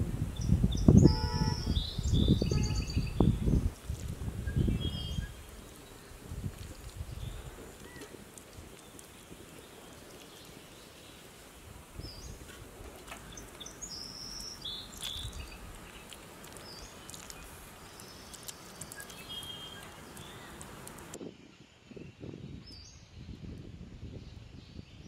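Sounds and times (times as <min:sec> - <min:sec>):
outdoor background noise: 0:00.0 - 0:25.0
birds chirping: 0:00.4 - 0:03.7, 0:04.5 - 0:21.2.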